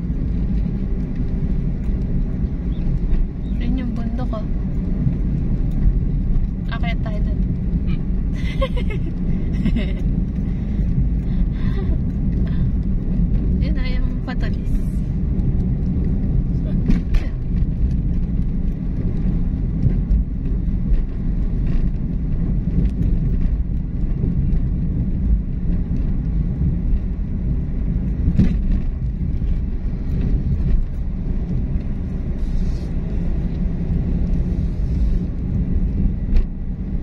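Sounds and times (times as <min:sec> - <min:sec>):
vehicle engine and tyres rumbling: 0:00.0 - 0:37.0.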